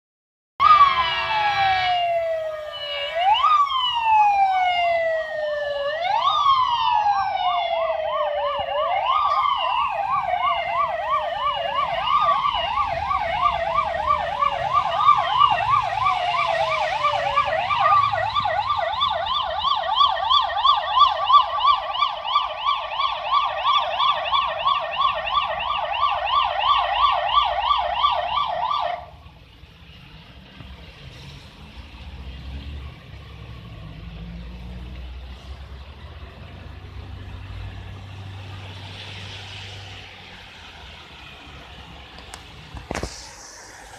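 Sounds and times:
fast yelping siren: 0:00.6 - 0:29.1
wailing siren: 0:00.6 - 0:29.3.

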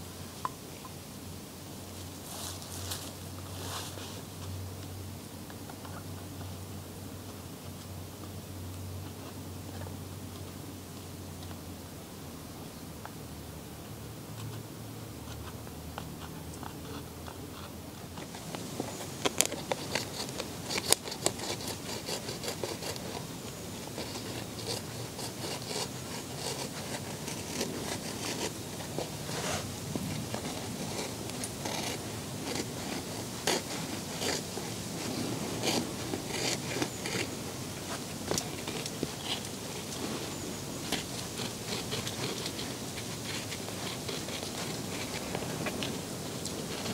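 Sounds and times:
knife scraping rawhide: 0:18.4 - 0:46.9.

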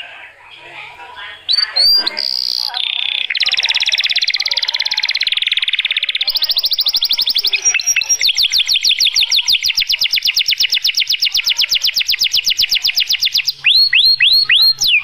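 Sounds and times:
canary singing trill: 0:01.2 - 0:15.0.

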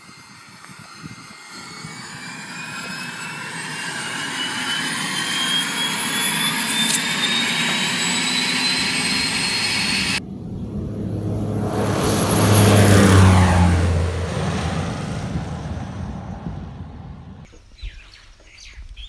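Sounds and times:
turboprop aircraft turbine whine: 0:00.0 - 0:17.5.

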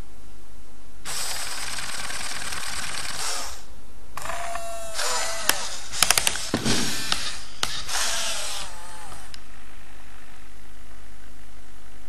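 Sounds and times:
sharp clicks: 0:04.2 - 0:08.2
robot motors whirring: 0:04.2 - 0:09.4.

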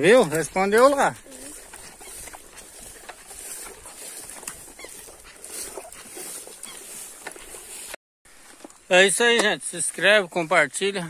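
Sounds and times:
footsteps rustling through grass: 0:00.0 - 0:10.5
distant animal calls: 0:01.1 - 0:07.6.

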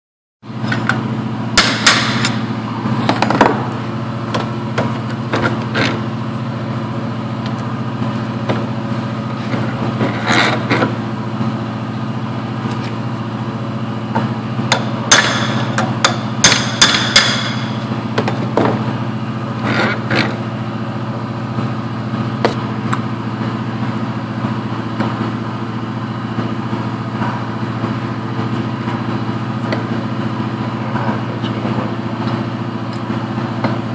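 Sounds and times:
low machine hum: 0:00.4 - 0:33.9
hammer striking metal: 0:01.6 - 0:02.4, 0:14.7 - 0:17.8.

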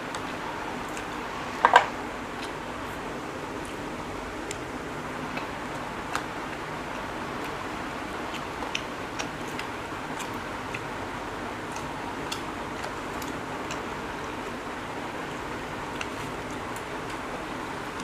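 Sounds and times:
fingers picking at food on plates: 0:00.0 - 0:14.6, 0:15.2 - 0:17.3
chewing: 0:00.1 - 0:01.2, 0:05.3 - 0:10.9, 0:11.6 - 0:14.6, 0:15.2 - 0:17.3.

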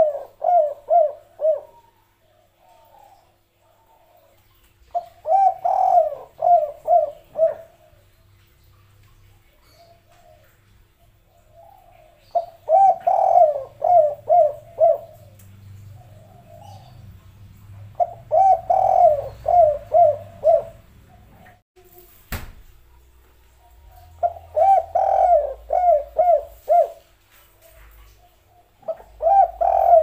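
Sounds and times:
dove cooing: 0:00.0 - 0:08.2, 0:11.3 - 0:15.4, 0:16.0 - 0:17.0, 0:17.8 - 0:21.6, 0:23.9 - 0:27.1, 0:27.7 - 0:30.0.

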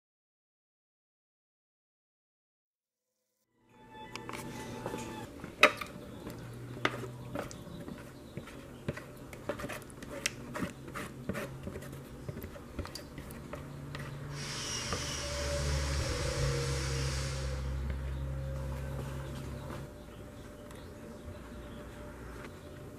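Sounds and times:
spatula scraping hiss: 0:14.2 - 0:18.0.

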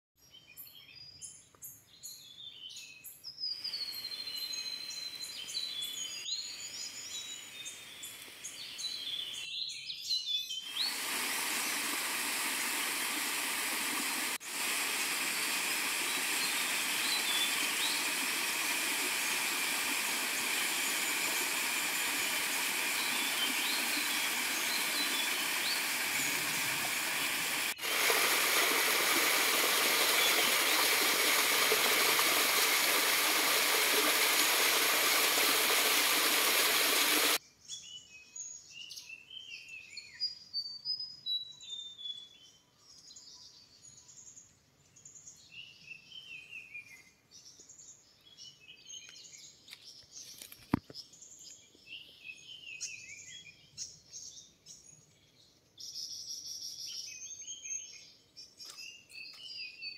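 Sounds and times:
waterfall splashing over rocks: 0:10.8 - 0:37.4
birds chirping and whistling: 0:14.7 - 0:28.0.

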